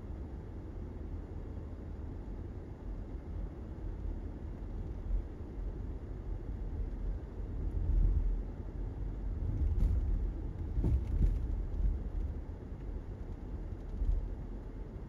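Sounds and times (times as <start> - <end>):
car driving rumble: 6.4 - 14.8.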